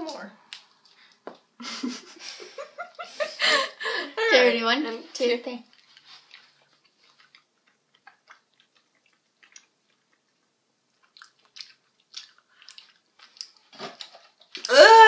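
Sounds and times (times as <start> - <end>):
chewing soft candy: 0.0 - 1.5, 5.6 - 14.7.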